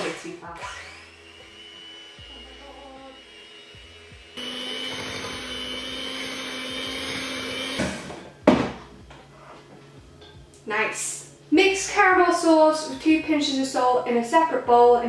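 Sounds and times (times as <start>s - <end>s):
electric hand mixer whirring: 0.6s - 8.3s.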